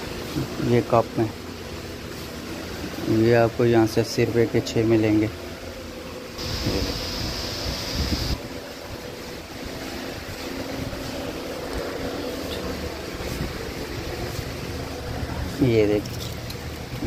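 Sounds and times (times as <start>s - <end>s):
thin hiss: 6.4s - 8.4s.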